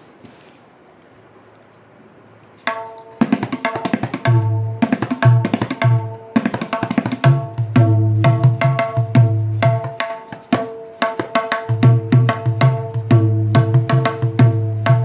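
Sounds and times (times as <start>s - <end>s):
ringing tabla strokes: 2.6s - 15.0s.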